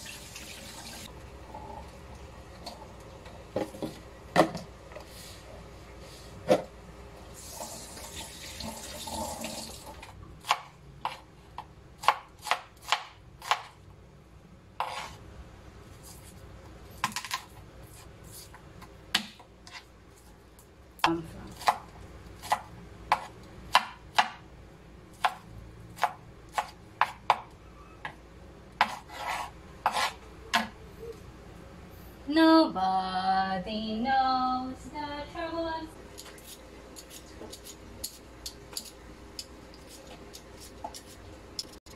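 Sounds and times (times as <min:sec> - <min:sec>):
water running from a tap: 0:00.0 - 0:01.1, 0:07.4 - 0:10.0
knife chopping on wooden board: 0:21.6 - 0:24.4, 0:26.0 - 0:27.4, 0:28.8 - 0:30.7.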